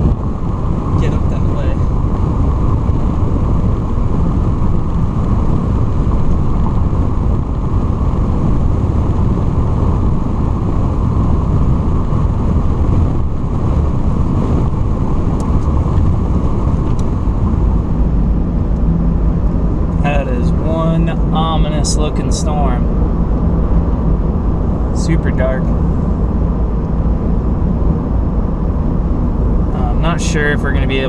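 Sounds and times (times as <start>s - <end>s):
car road and engine noise: 0.0s - 31.0s.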